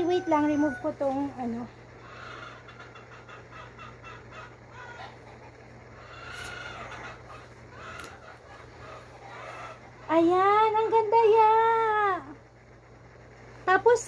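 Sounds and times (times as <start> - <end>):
faint bird calls: 1.9 - 10.2.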